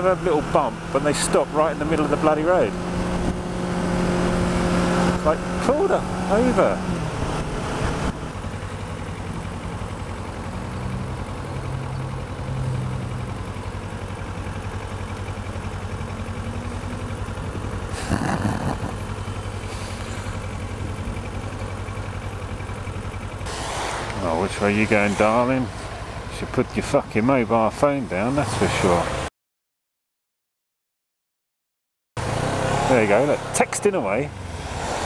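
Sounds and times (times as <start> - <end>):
motorcycle engine idling: 8.3 - 23.5, 24.2 - 27.9
short rush of noise: 23.5 - 25.2.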